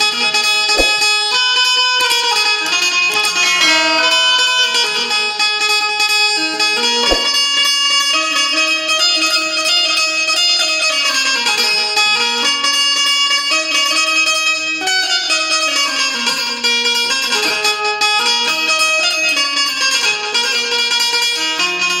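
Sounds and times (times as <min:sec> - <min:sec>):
low knock: 0:00.8 - 0:01.1, 0:07.0 - 0:07.4
keyed zither playing melody: 0:02.7 - 0:09.2.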